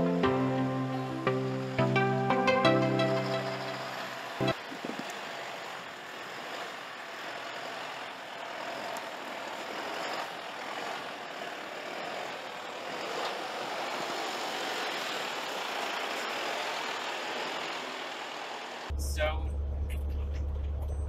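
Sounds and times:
truck diesel engine running: 0.0s - 21.0s
tyres crunching on snow: 3.6s - 18.9s.

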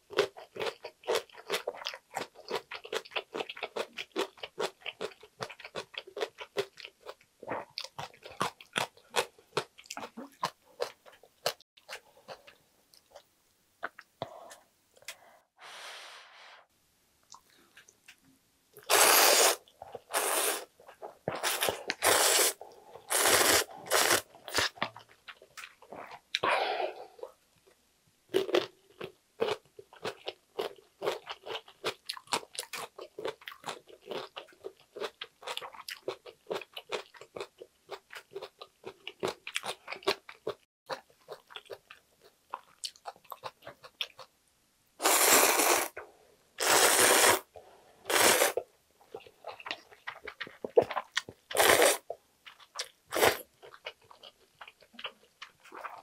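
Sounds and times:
person slurping noodles: 18.9s - 20.7s, 21.3s - 24.8s, 45.0s - 46.0s, 46.6s - 47.5s, 48.1s - 48.6s, 51.6s - 52.0s.

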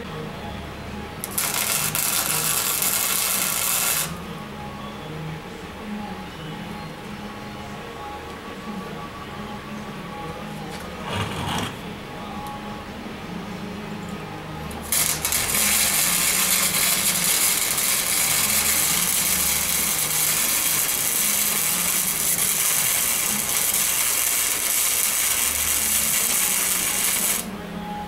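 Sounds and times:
arc welder crackling hiss: 1.2s - 4.2s, 14.8s - 27.5s.

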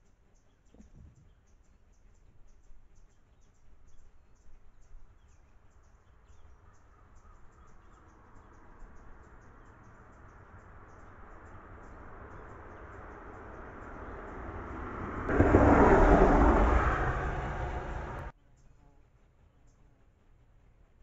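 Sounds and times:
low engine noise: 9.9s - 18.3s.

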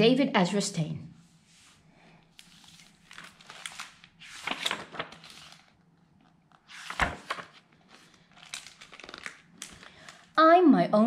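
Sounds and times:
book pages rustling: 1.6s - 10.3s.

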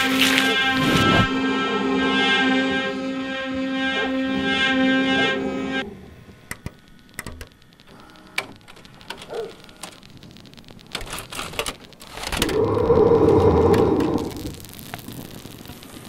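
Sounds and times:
rush of noise: 0.0s - 4.6s, 12.2s - 15.5s
music: 0.0s - 5.8s
buttons and tape mechanism clicking: 6.4s - 14.4s.

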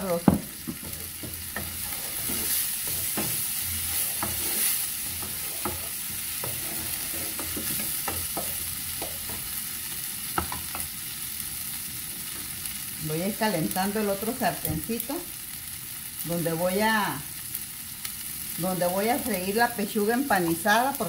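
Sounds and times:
corn sizzling in a frying pan: 0.0s - 21.0s
spoon scraping and tapping pan: 0.2s - 9.5s, 10.4s - 10.9s.

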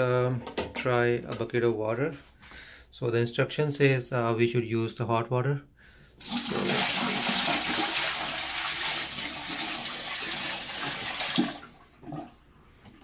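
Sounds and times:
water pouring into bathtub: 6.2s - 13.0s
water running down drain: 6.2s - 13.0s.

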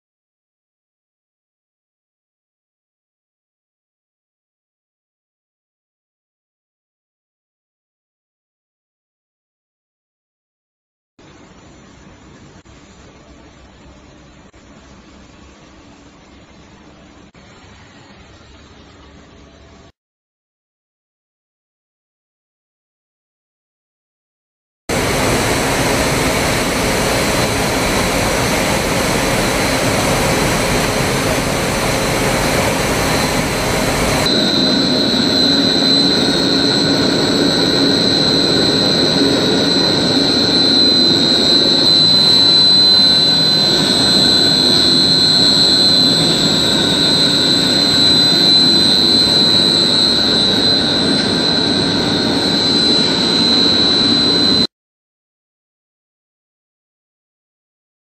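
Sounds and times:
dense machine noise: 24.9s - 54.7s
high-pitched machine whine: 24.9s - 54.7s.

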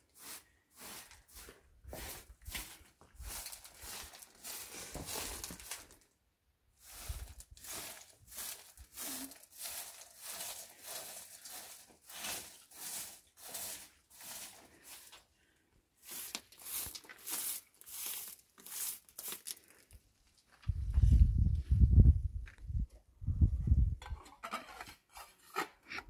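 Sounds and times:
broom sweeping dirt floor: 0.0s - 6.1s, 6.7s - 19.9s.

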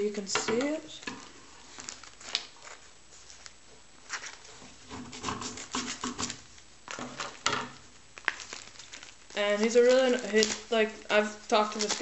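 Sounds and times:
plastic crinkling: 0.0s - 12.0s
scissors snipping plastic: 11.5s - 12.0s.

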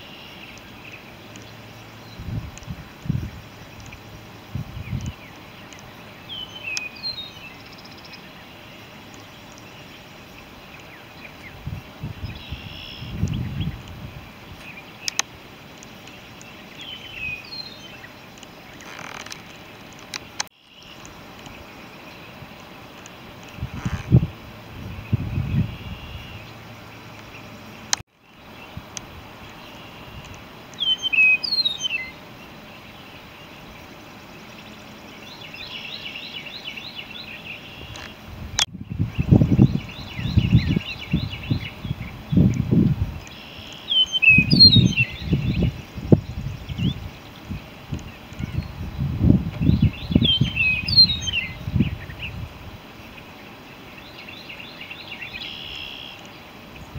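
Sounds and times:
birds chirping: 0.0s - 56.9s
outdoor background noise: 0.0s - 56.9s
sharp clicks: 15.0s - 16.5s.

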